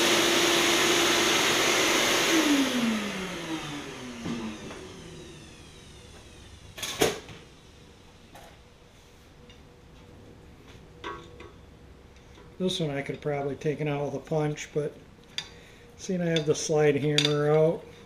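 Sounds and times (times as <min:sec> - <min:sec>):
vacuum cleaner winding down: 0:00.0 - 0:08.0.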